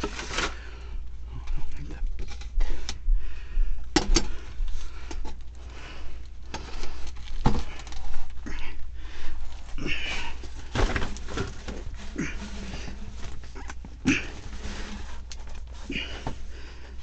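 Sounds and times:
rustling and shuffling over debris: 0.0 - 2.6, 4.1 - 17.0
steady low hum: 0.0 - 17.0
clicks and knocks of fittings: 3.9 - 4.4.

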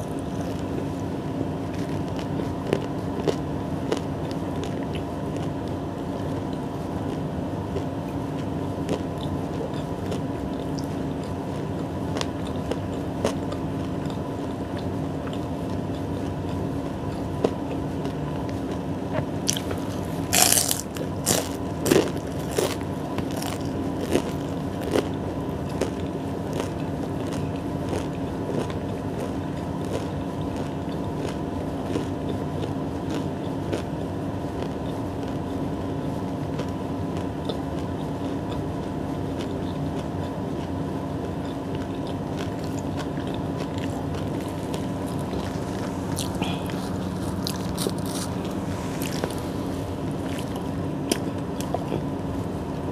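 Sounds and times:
bread bites and chewing: 0.0 - 52.9
steady background hum: 0.0 - 52.9
crisp bread roll sounds: 15.7 - 38.5, 41.2 - 52.6.

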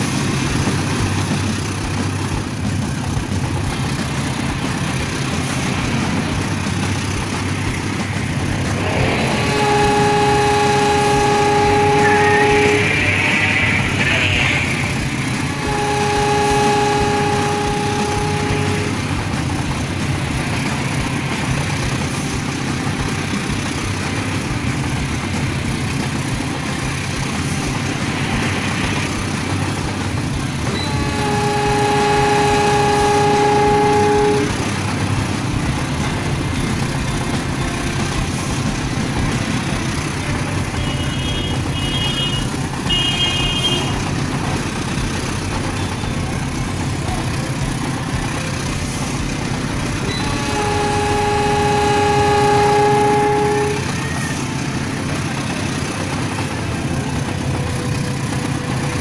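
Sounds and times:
diesel locomotive engine rumble: 0.0 - 59.0
locomotive horn blasts: 0.0 - 59.0
short high horn toots: 7.0 - 19.8, 26.5 - 44.6, 47.8 - 58.5.

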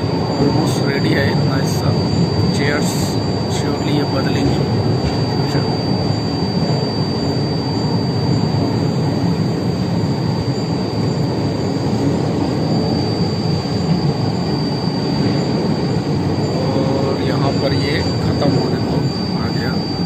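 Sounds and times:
train rumbling: 0.0 - 6.9
high-pitched whine: 0.0 - 20.0.

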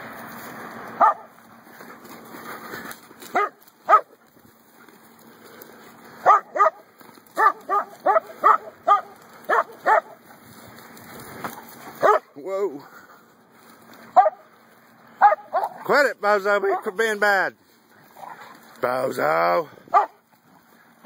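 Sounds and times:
dog barking: 1.0 - 1.3, 3.3 - 4.2, 6.2 - 10.2, 12.0 - 12.3, 14.1 - 14.5, 15.2 - 15.8, 19.9 - 20.2.

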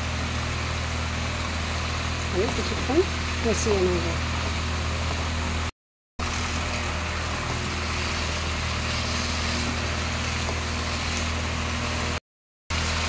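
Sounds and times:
stovetop low hum: 0.0 - 13.0
vegetables frying hiss: 6.2 - 13.0.

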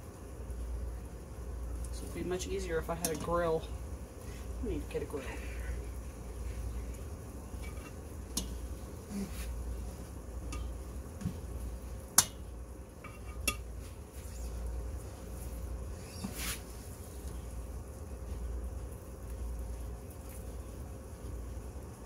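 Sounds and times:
low steady hum: 0.0 - 22.0
metal tongs clinking on skillets: 3.0 - 3.3, 7.6 - 8.7, 10.5 - 10.9, 13.0 - 13.7.

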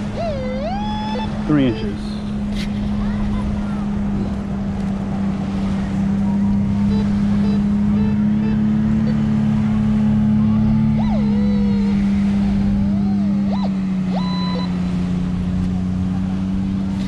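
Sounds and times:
metal detector target tones: 13.5 - 14.7.

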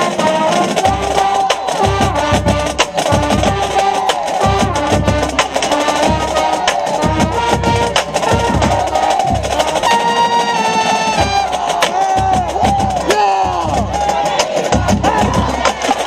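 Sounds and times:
bass drum beat: 0.0 - 10.0, 11.2 - 16.0
trumpet close to microphone: 0.0 - 11.8
marching band brass: 0.0 - 16.0.

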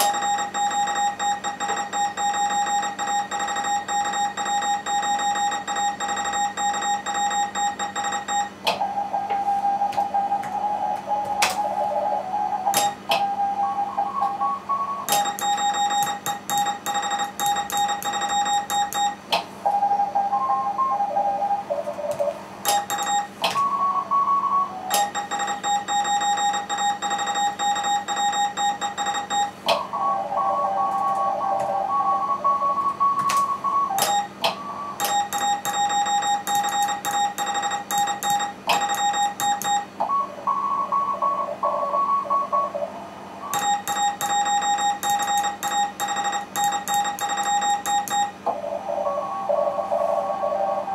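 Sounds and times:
morse code at different pitches: 0.0 - 8.6, 14.4 - 19.2, 22.7 - 23.4, 24.9 - 42.7, 43.5 - 48.4
morse code tone: 0.0 - 10.4, 12.7 - 21.6, 22.7 - 42.8, 43.4 - 48.5.

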